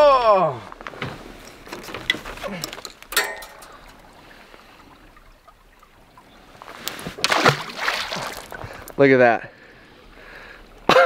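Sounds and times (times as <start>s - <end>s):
faint water hiss: 3.6s - 10.9s.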